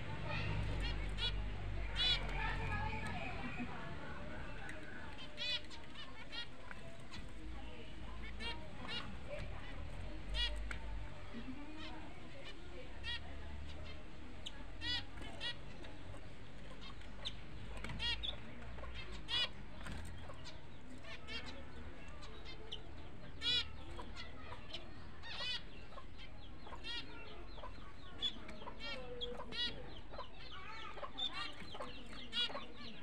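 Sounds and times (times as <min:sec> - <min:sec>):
budgerigar chirping: 0:13.0 - 0:33.0.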